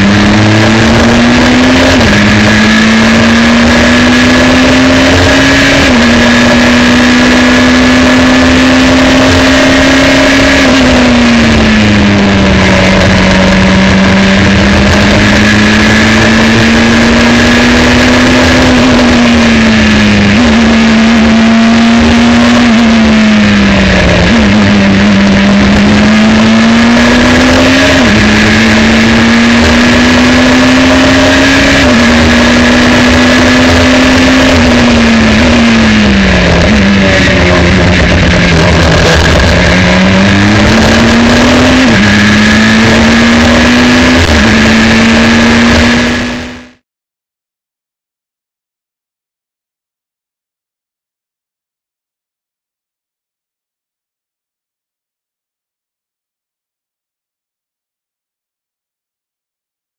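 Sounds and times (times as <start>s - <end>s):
racing car engine revving: 0.0s - 46.8s.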